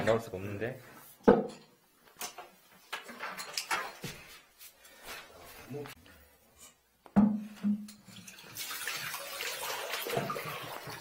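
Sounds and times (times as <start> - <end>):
ceramic toilet knocking on tile floor: 7.1 - 7.9
water splashing onto tiles: 8.1 - 11.0.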